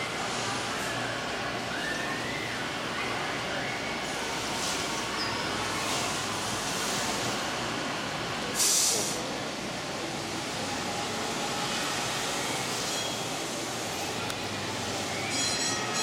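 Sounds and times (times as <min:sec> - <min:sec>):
short loud hiss: 0:08.6 - 0:09.2.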